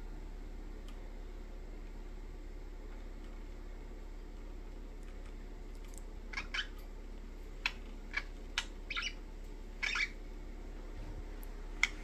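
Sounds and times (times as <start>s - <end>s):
budgerigars chirping: 6.3s - 6.8s, 7.6s - 9.2s, 9.8s - 10.2s.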